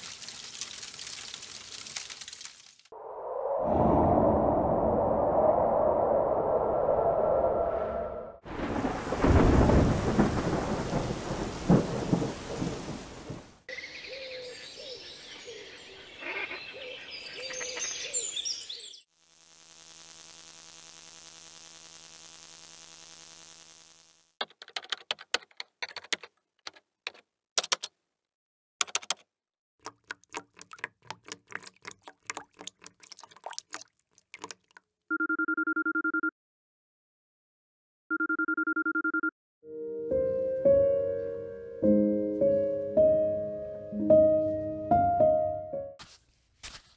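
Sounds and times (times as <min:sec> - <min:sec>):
thunder rumbling and cracking: 0:08.5 - 0:13.6
electrical buzz: 0:19.1 - 0:24.4
keyboard typing clicks: 0:24.4 - 0:27.9, 0:28.8 - 0:31.8
two-tone electronic ring: 0:35.1 - 0:36.3, 0:38.1 - 0:39.3.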